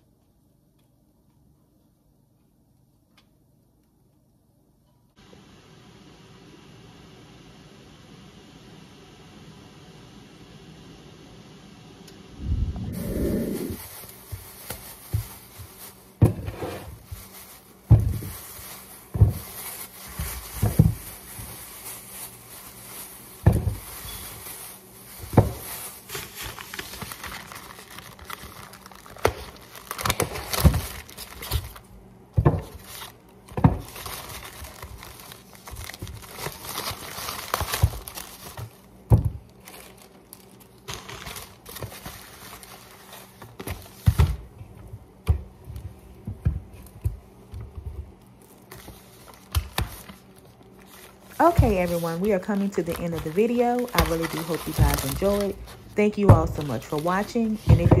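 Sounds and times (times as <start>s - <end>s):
plastic bags crinkling: 13.0s - 16.2s, 16.9s - 31.9s, 32.6s - 44.5s, 48.2s - 58.0s
groceries knocking on countertop: 14.2s - 18.5s, 19.1s - 21.6s, 23.4s - 24.4s, 25.2s - 26.4s, 29.1s - 31.7s, 32.3s - 32.9s, 33.5s - 35.1s, 37.5s - 39.4s, 43.4s - 48.1s, 51.4s - 51.9s, 53.0s - 58.0s.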